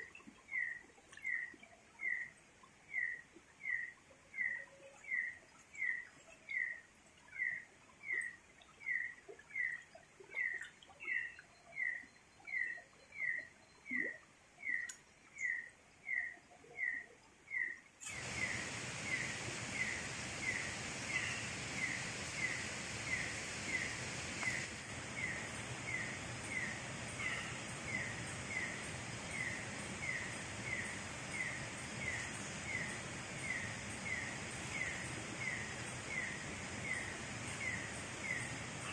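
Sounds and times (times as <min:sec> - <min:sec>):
jungle background hiss: 0:00.0 - 0:09.7, 0:14.5 - 0:38.9.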